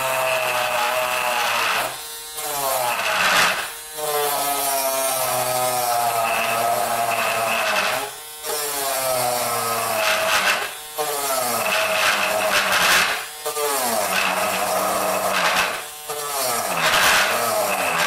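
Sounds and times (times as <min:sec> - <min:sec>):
rotary tool grinding plastic: 0:00.0 - 0:18.0.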